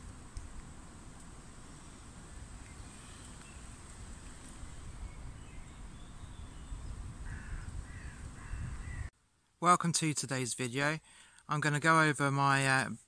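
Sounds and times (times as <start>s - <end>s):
wind rumble on microphone: 0.0s - 9.1s
faint bird calls: 1.7s - 9.1s.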